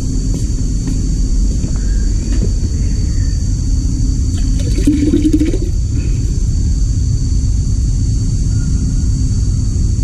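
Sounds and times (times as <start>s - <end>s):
pressure washer pump rumbling: 4.3s - 6.1s.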